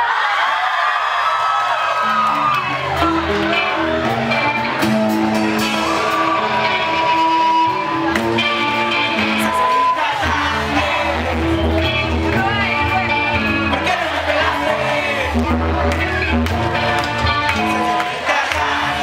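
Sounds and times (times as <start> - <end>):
surf rock band playing: 2.0 - 19.0.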